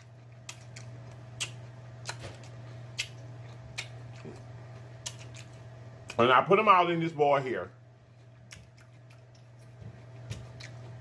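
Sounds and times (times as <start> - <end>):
low electrical hum: 0.0 - 11.0
wet chewing mouth smacks: 0.3 - 6.2, 8.3 - 11.0.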